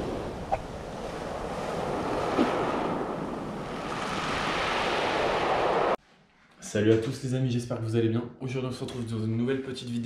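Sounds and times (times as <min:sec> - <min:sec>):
surf on pebble beach: 0:00.0 - 0:06.0.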